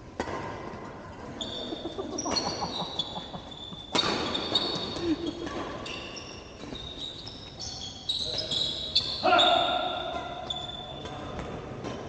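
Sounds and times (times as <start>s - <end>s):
racket hitting shuttlecock: 0.2s - 0.8s, 3.9s - 5.8s
sneakers squeaking on court floor: 1.2s - 12.0s.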